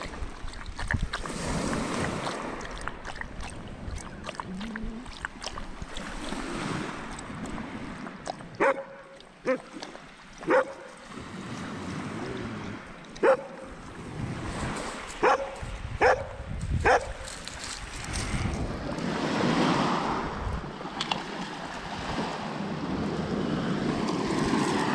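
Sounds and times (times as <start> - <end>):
dog barking: 8.6 - 9.7, 10.4 - 11.0, 13.2 - 13.7, 15.2 - 17.3.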